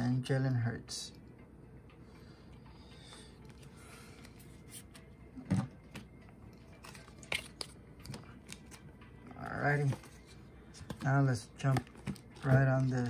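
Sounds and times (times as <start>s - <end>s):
cards clicking and rustling: 5.8s - 8.9s, 9.8s - 13.0s.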